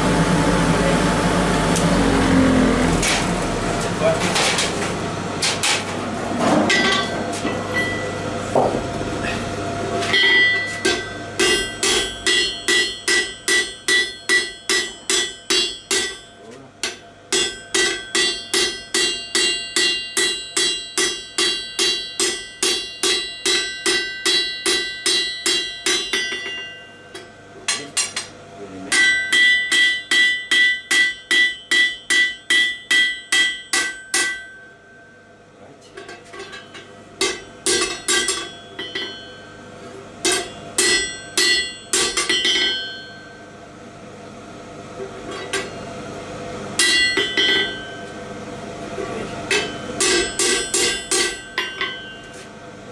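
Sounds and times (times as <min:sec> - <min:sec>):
hammer striking metal on anvil: 0:06.7 - 0:09.4, 0:10.0 - 0:28.3, 0:28.9 - 0:35.2, 0:36.0 - 0:43.5, 0:45.2 - 0:45.8, 0:46.8 - 0:48.2, 0:49.4 - 0:52.5.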